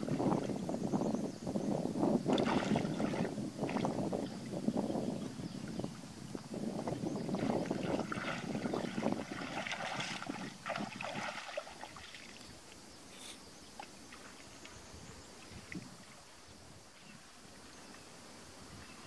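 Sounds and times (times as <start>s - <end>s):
muddy water splashing: 2.3s - 4.1s, 7.3s - 14.6s.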